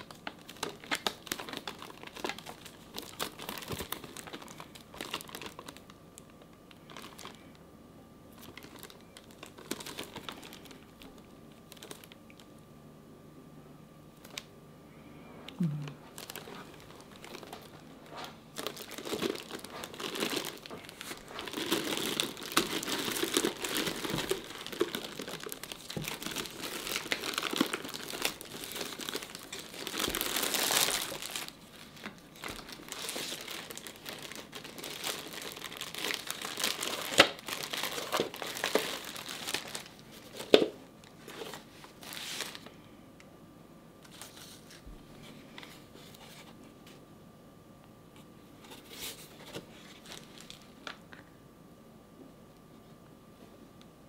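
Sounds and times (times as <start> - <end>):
plastic film crinkling and tearing: 0.0 - 7.6, 8.3 - 12.5, 14.2 - 14.5, 16.0 - 42.8, 44.0 - 44.8, 48.6 - 51.2.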